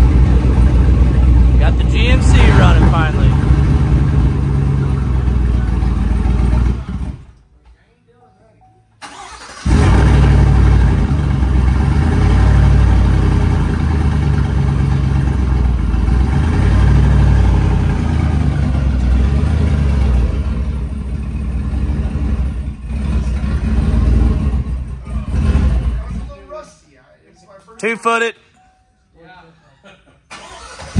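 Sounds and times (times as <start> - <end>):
loud engine running: 0.0 - 7.3, 9.7 - 26.2.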